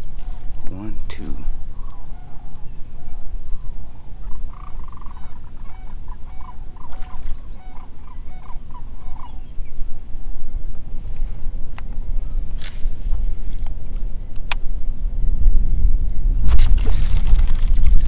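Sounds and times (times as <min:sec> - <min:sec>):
steady low rumble: 0:00.0 - 0:18.0
bird calling short notes: 0:01.7 - 0:09.6.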